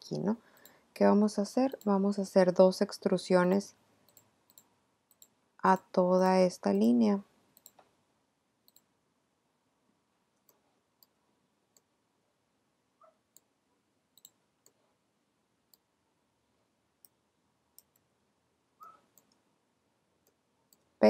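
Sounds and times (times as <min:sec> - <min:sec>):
faint computer mouse clicks: 0:00.5 - 0:00.8, 0:04.1 - 0:05.4, 0:07.6 - 0:07.9, 0:08.7 - 0:08.9, 0:14.2 - 0:14.8.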